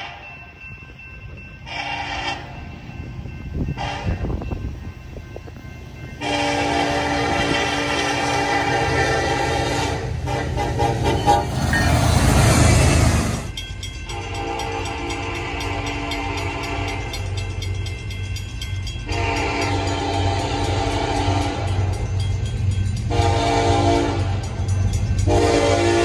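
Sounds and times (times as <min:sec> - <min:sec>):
low rumble of train: 0:00.0 - 0:26.0
locomotive air horn: 0:01.6 - 0:02.6, 0:03.8 - 0:04.4, 0:06.2 - 0:13.4, 0:14.1 - 0:17.2, 0:19.1 - 0:21.8, 0:23.1 - 0:24.4, 0:25.2 - 0:26.0.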